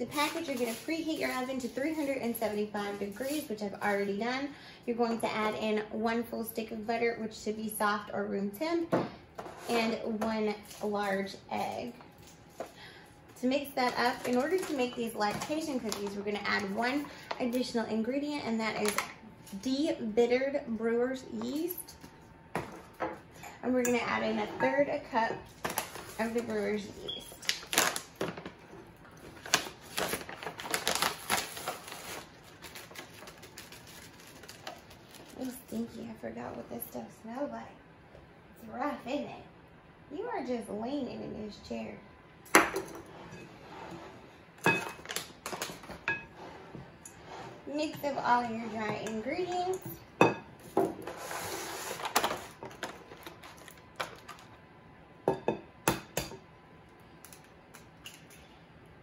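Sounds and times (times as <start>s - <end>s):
plastic rustle: 0.0s - 4.0s, 13.8s - 17.4s, 25.5s - 26.8s, 27.4s - 28.4s, 29.1s - 35.8s, 51.0s - 54.6s
plastic pouch crinkling: 27.4s - 28.2s, 29.2s - 35.5s.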